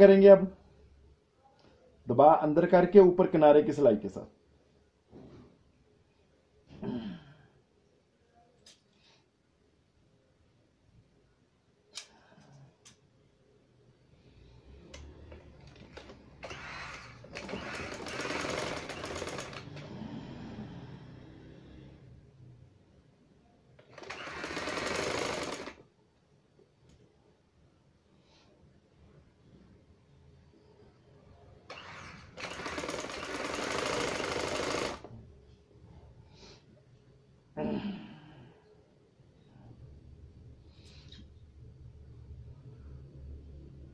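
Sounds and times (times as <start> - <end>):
sewing machine stitching: 15.0 - 20.0, 23.8 - 25.8, 31.7 - 35.1.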